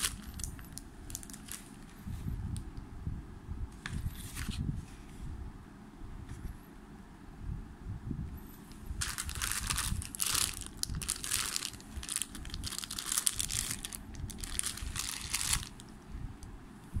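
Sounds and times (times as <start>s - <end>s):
plastic bag crinkling: 0.0s - 1.9s, 9.0s - 15.9s.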